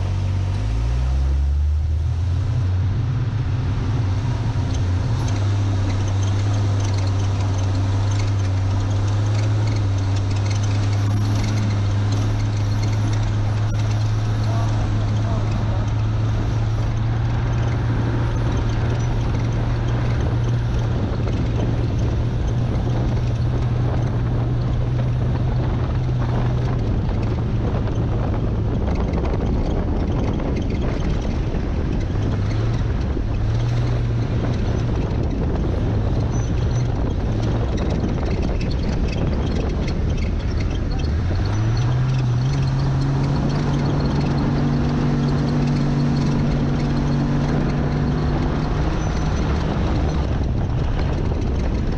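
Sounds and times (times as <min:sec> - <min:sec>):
road and wind noise: 0:00.0 - 0:51.9
truck engine running: 0:00.0 - 0:51.9.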